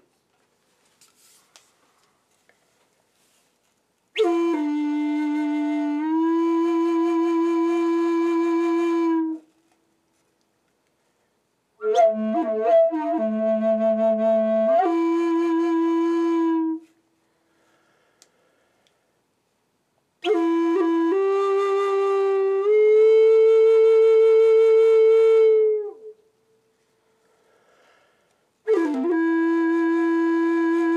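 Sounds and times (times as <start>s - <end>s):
wooden flute playing slowly: 4.1s - 9.8s, 11.8s - 17.1s, 20.2s - 27.9s, 28.6s - 30.9s.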